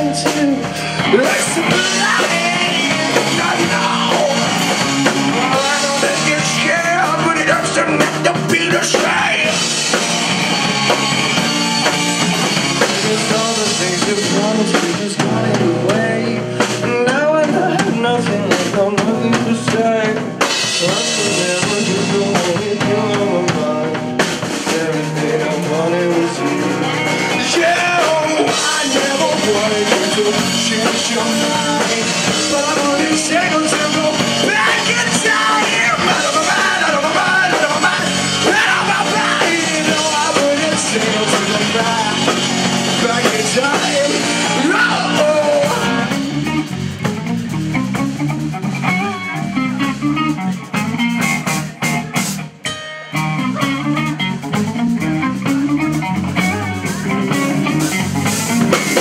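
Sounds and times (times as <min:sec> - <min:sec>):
man singing: 0:00.0 - 0:10.0, 0:12.3 - 0:46.8
live rock band playing: 0:00.0 - 0:59.0.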